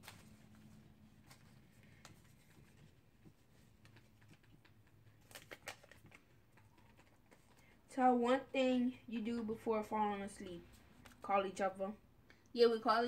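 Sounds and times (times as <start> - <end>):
paper slip rustling and clicking: 0.0 - 7.7.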